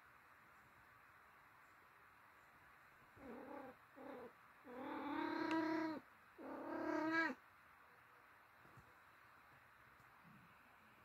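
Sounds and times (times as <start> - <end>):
cat meowing: 3.2 - 7.4.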